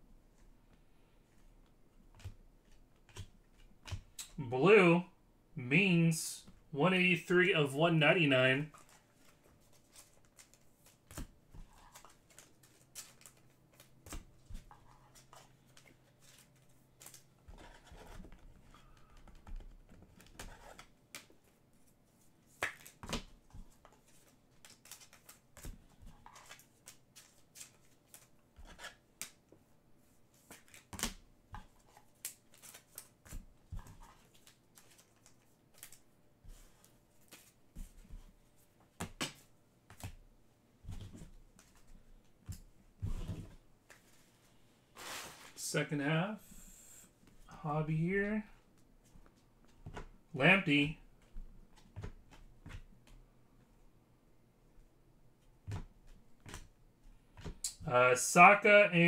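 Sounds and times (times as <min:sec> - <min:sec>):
cards clicking and rustling: 0:08.7 - 0:21.6, 0:22.4 - 0:29.5, 0:30.4 - 0:38.2.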